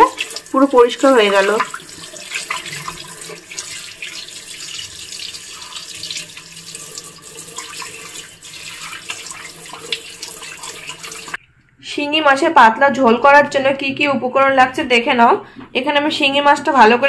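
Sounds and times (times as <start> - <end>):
hand rinsing fish: 0.0 - 11.4
tap water running into basin: 0.0 - 11.4.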